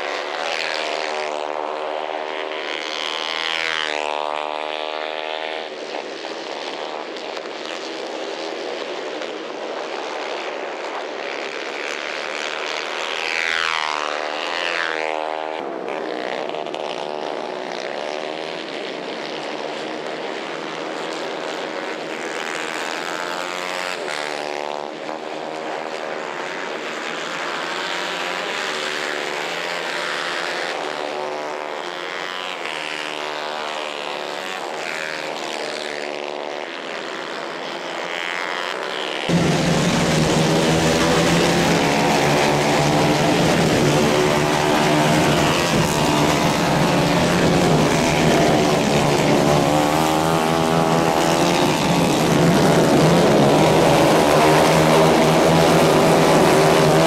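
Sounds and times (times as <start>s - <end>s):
racing kart engines at high revs: 11.4s - 57.0s.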